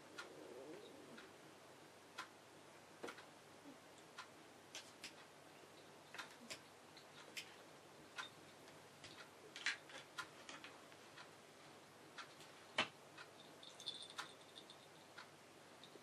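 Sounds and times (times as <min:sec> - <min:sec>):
cats pawing clicks and taps: 0:04.7 - 0:05.3, 0:06.1 - 0:07.6
collar bell tinkling: 0:13.4 - 0:15.1.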